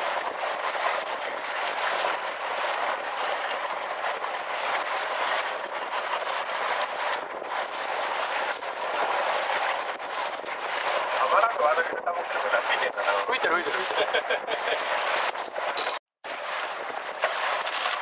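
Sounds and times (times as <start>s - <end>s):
boat rushing over water: 0.0s - 18.0s.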